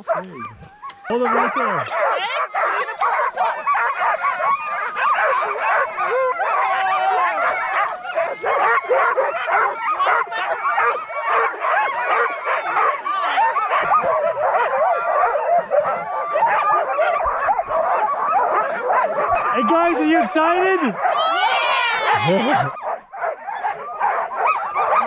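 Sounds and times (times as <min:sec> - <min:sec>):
sled dogs yipping and howling: 0:00.0 - 0:25.0.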